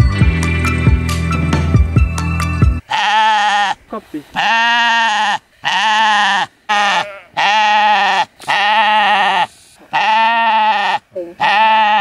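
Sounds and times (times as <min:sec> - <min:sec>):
sheep bleating: 0:02.9 - 0:12.0.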